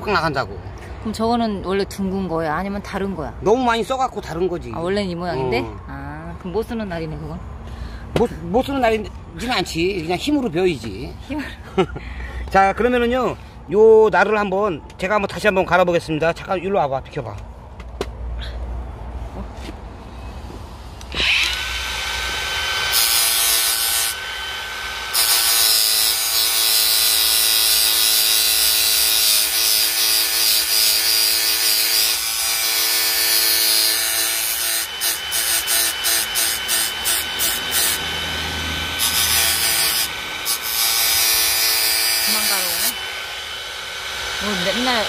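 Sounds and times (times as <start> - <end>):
grinder motor whine: 21.0 - 29.1, 32.1 - 45.0
disc grinding metal blade: 22.8 - 45.0.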